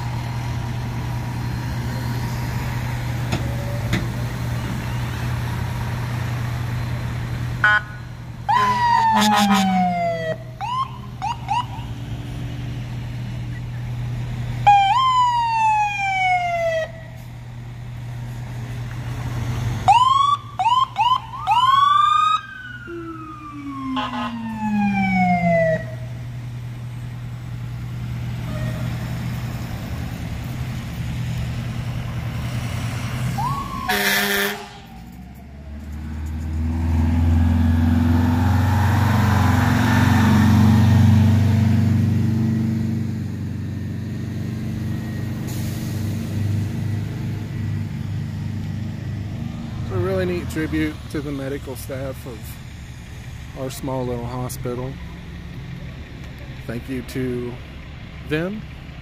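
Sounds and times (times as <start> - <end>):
fire truck driving past: 0.0 - 59.0
idling truck engines hum: 0.0 - 59.0
emergency sirens wailing and whooping: 7.6 - 12.2, 14.6 - 17.2, 19.5 - 26.4, 31.6 - 41.8.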